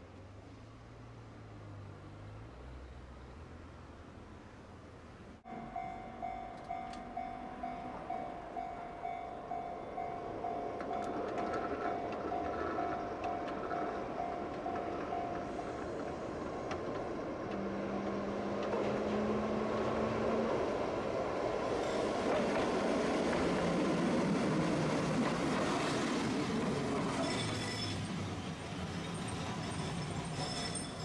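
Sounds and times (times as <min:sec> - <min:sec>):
streetcar rumbling on track: 0:05.4 - 0:31.0
faint wheel squeal: 0:26.7 - 0:31.0.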